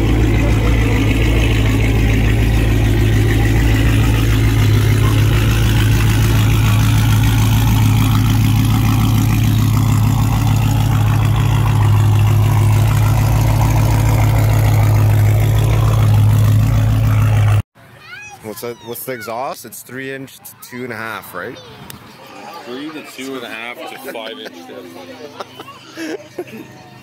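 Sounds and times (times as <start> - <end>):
car engine idling: 0.0 - 17.6.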